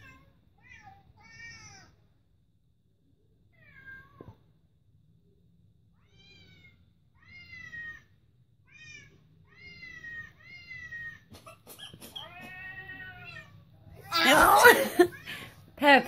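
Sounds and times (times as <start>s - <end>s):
cat meowing: 8.7s - 15.2s.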